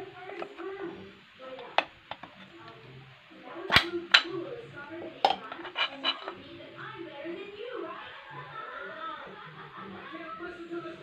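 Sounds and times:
screwdriver clicking on metal: 5.3 - 6.4.

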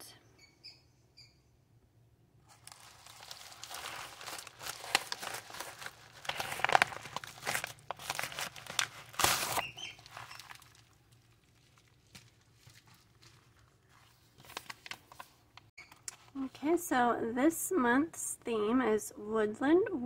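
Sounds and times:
plastic mailer crinkling: 2.4 - 15.7
paper rustling: 2.4 - 16.3.

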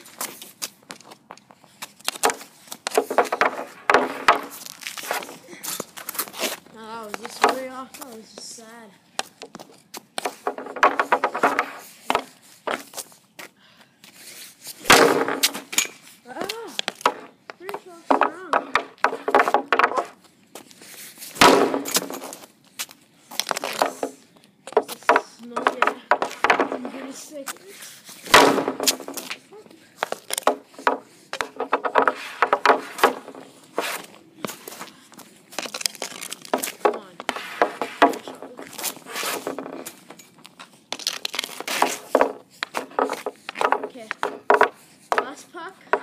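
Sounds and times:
hockey stick clacking pucks: 2.0 - 8.2, 9.2 - 12.9, 15.0 - 20.2, 23.5 - 27.6, 30.0 - 46.0
hockey stick cracking puck: 2.1 - 5.3, 30.0 - 34.1, 35.6 - 40.0, 41.0 - 45.3
stick and puck tapping on pad: 30.0 - 33.4, 41.8 - 46.0.

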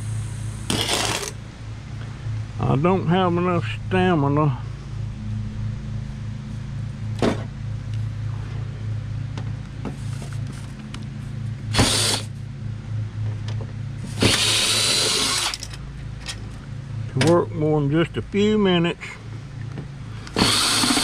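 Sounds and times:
cordless drill bursts: 0.7 - 1.3, 11.7 - 12.3, 14.2 - 15.6, 20.3 - 21.0.

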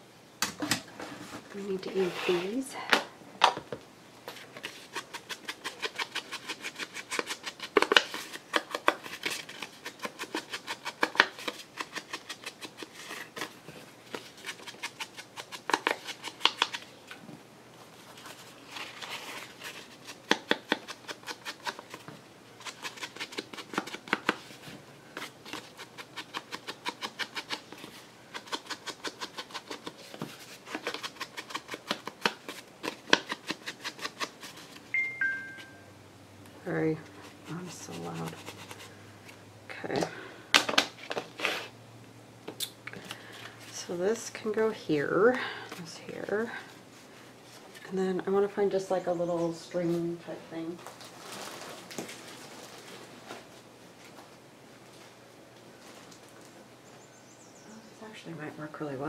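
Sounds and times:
scissors snipping paper: 4.6 - 13.5, 25.2 - 34.8.

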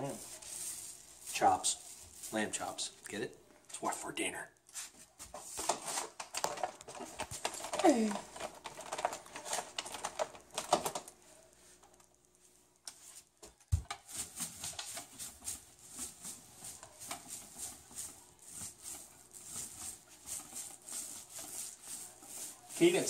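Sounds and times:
paint roller sticky swish: 0.0 - 2.9, 13.9 - 23.0.

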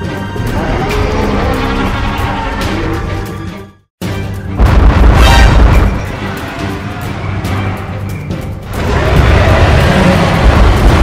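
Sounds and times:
background music: 0.0 - 11.0
dinosaur roar: 0.5 - 3.1, 8.8 - 11.0.

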